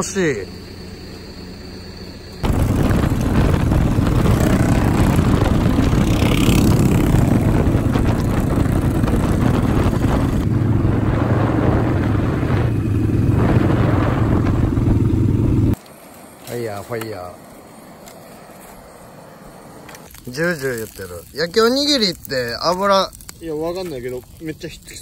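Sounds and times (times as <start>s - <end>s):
motorcycle engine running: 2.4s - 15.8s
wind rush: 2.4s - 15.8s.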